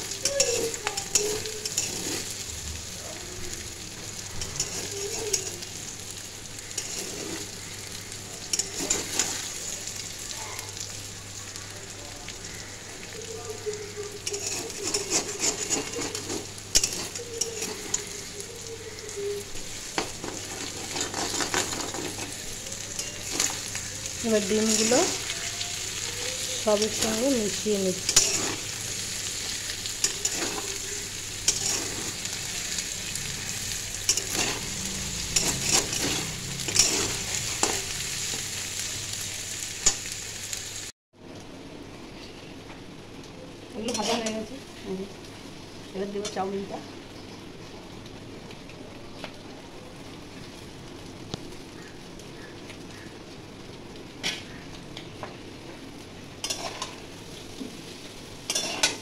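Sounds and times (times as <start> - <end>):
food sizzling in a wok: 0.0 - 59.0
metal spatula scraping a pan: 0.2 - 2.4, 4.4 - 5.8, 6.6 - 7.6, 8.4 - 9.6, 14.1 - 18.3, 19.5 - 25.8, 26.5 - 38.6, 43.8 - 44.4, 56.4 - 57.0, 58.5 - 59.0.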